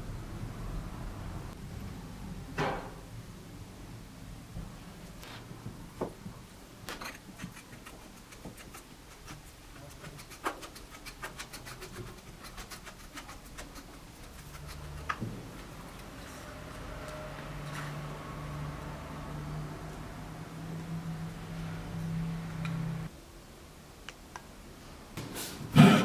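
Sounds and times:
metal tool scraping and tapping: 0:06.9 - 0:12.2.

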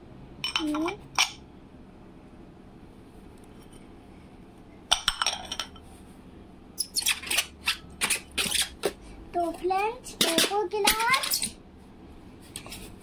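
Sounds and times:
glass tableware clinking: 0:04.9 - 0:05.8.

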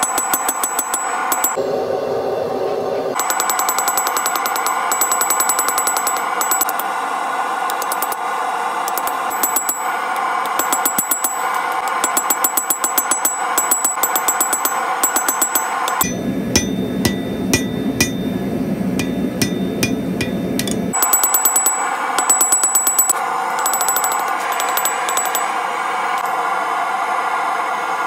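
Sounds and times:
hammer ringing on anvil: 0:00.0 - 0:01.6, 0:03.2 - 0:06.8, 0:08.9 - 0:25.6.

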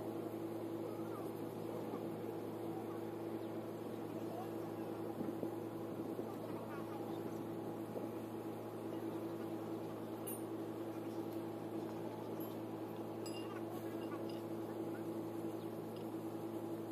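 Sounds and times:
mechanical hum: 0:00.0 - 0:16.9
faint distant voices: 0:00.7 - 0:09.6.

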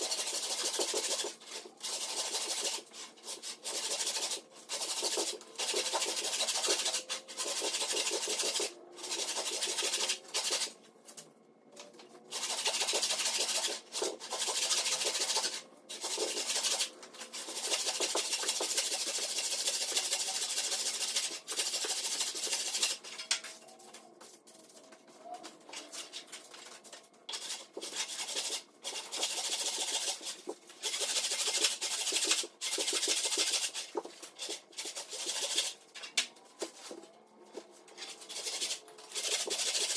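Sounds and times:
hand saw rasping through wood: 0:00.0 - 0:10.8, 0:12.3 - 0:23.0, 0:27.3 - 0:35.8, 0:38.0 - 0:39.9.

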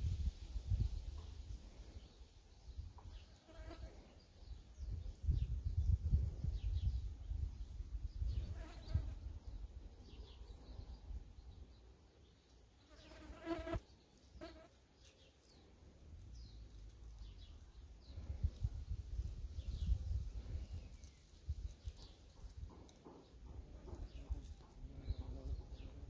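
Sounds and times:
wind rumbling on microphone: 0:00.0 - 0:02.0, 0:04.4 - 0:09.8, 0:18.0 - 0:22.8
bird chirps: 0:00.6 - 0:26.0.

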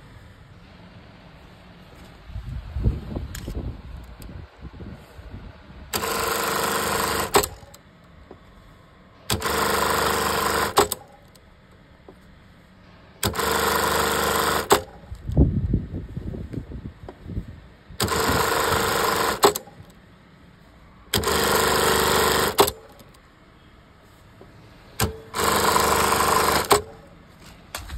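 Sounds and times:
sewing machine running: 0:05.9 - 0:07.8, 0:09.3 - 0:11.2, 0:13.2 - 0:15.0, 0:18.0 - 0:19.9, 0:21.1 - 0:23.1, 0:25.0 - 0:27.1
sharp click: 0:19.4 - 0:19.9.

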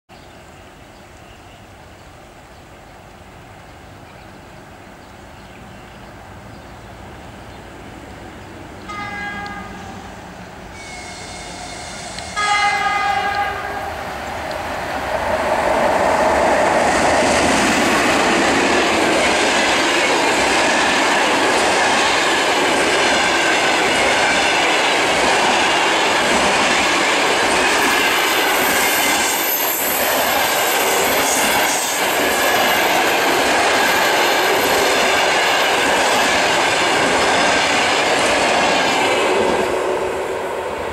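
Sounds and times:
train horn blast: 0:08.9 - 0:14.0
train wheels rumbling and clattering: 0:12.0 - 0:40.9.

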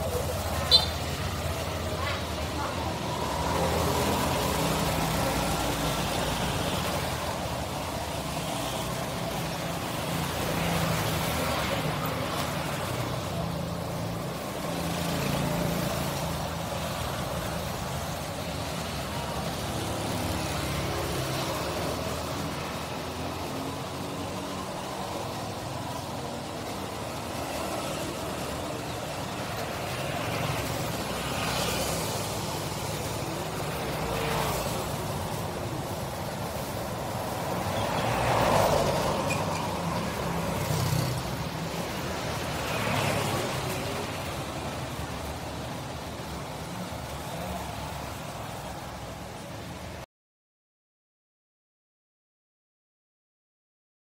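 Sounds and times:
faint voices: 0:00.0 - 0:06.0
engine and traffic noise: 0:00.0 - 0:50.1.

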